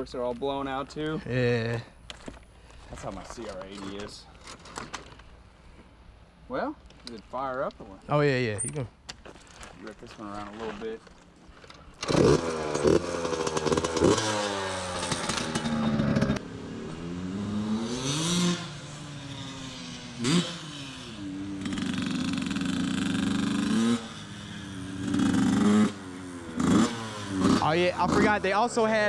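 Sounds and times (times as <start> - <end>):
dirt bike engine revving: 12.0 - 29.0.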